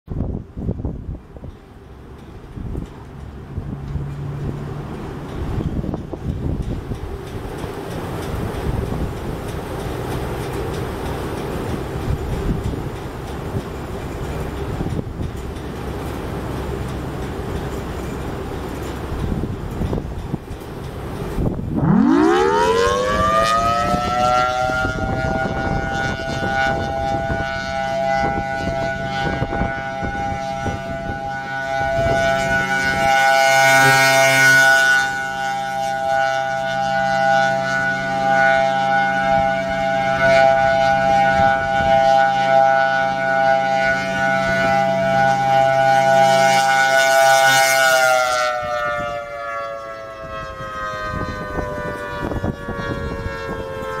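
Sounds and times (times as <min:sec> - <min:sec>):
rotating siren wailing: 0:21.1 - 0:54.0.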